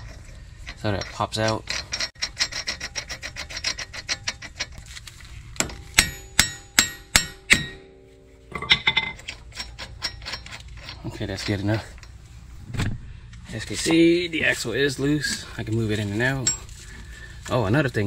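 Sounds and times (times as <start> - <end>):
hammer striking metal: 5.6 - 9.4.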